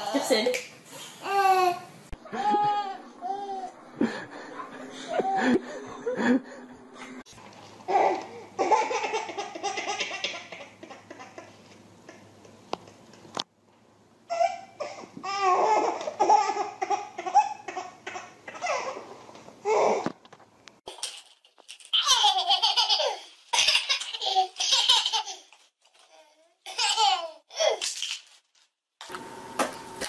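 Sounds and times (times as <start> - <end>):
baby laughing: 1.3 - 6.2, 7.9 - 12.2, 14.3 - 19.0, 21.9 - 25.6, 26.7 - 27.8.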